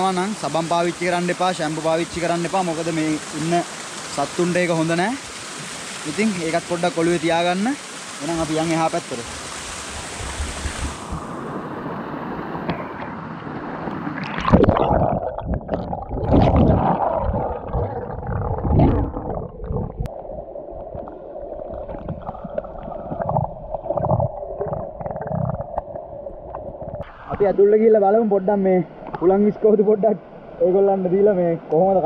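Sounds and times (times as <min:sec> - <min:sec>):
waterfall hiss: 0:00.0 - 0:12.6
muffled underwater gurgling: 0:14.2 - 0:27.5.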